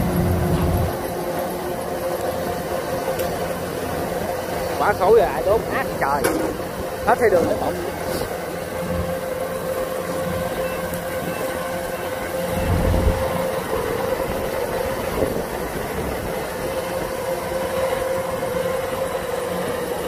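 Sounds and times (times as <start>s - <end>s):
combine harvester running: 0.0s - 20.0s
deeper rumble: 11.8s - 18.4s.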